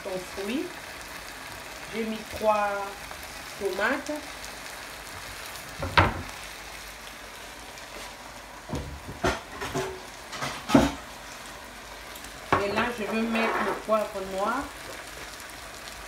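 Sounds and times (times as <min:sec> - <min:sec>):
vegetables sizzling in oil: 0:00.0 - 0:16.0.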